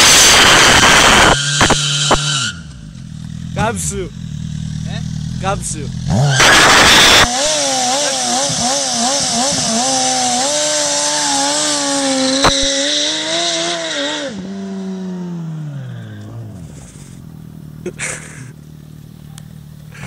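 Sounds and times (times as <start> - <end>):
loud engine blast: 0.0 - 2.8, 4.7 - 14.4
motorcycle engine at high revs: 0.0 - 20.0.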